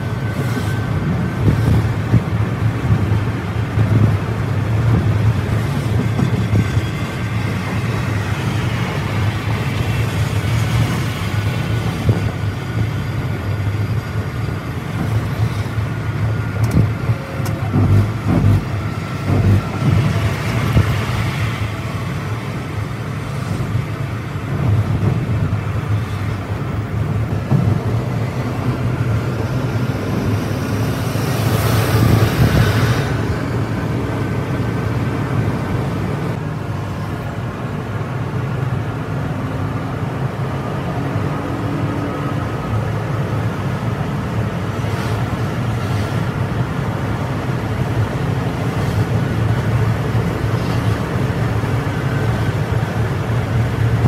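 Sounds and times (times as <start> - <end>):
coach engine drone: 0.0 - 54.0
rush of noise: 0.0 - 54.0
tyre and road noise: 0.0 - 54.0
thumps over rumble strips: 1.4 - 7.1, 16.6 - 21.7, 23.4 - 26.4, 27.1 - 28.4.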